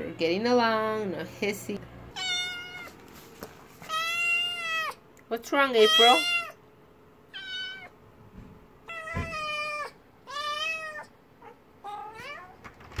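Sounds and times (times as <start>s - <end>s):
kitten meowing: 2.2s - 3.0s, 3.9s - 5.0s, 5.8s - 6.6s, 7.3s - 7.9s, 8.8s - 12.6s.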